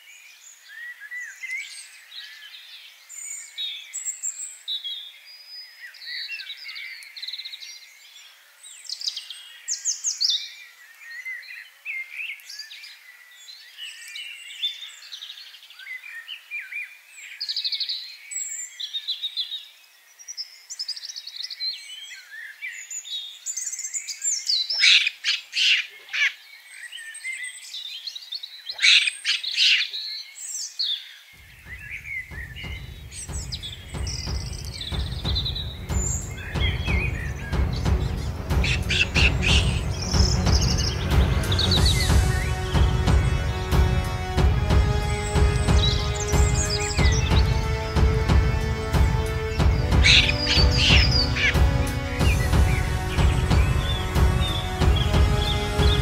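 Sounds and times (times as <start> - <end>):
songbirds chirping and singing: 0.0 - 56.0
rapid sharp bird calls: 31.3 - 56.0.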